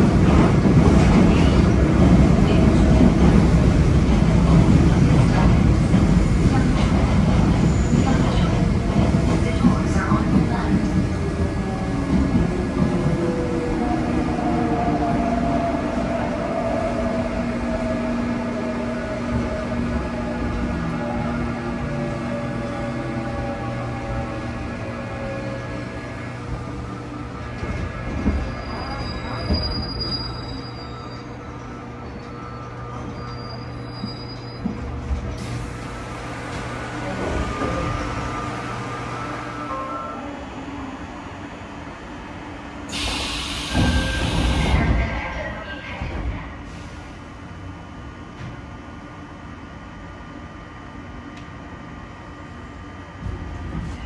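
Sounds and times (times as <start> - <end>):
train wheels rumbling on rails: 0.0 - 39.6, 41.8 - 48.9, 52.6 - 54.0
hissing of train doors: 42.9 - 44.9.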